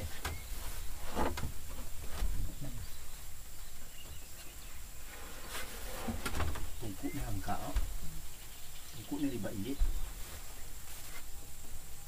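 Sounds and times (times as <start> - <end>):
faint bird chirps: 0.0 - 0.7, 2.4 - 5.2, 6.6 - 11.5.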